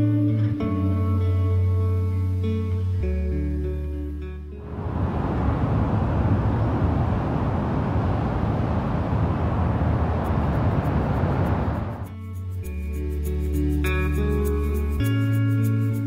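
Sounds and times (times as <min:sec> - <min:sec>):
wind: 0:00.5 - 0:15.9
ocean surf: 0:04.6 - 0:12.1.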